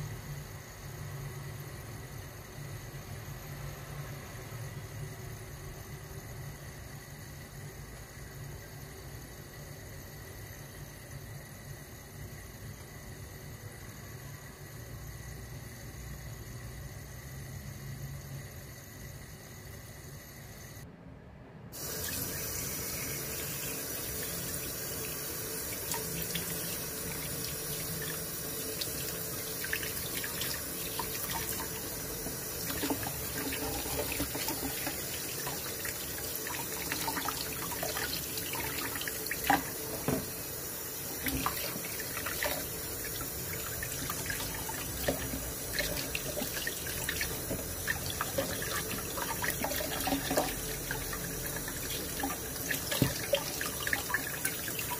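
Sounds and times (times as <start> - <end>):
tap water running into bowl: 21.8 - 54.9.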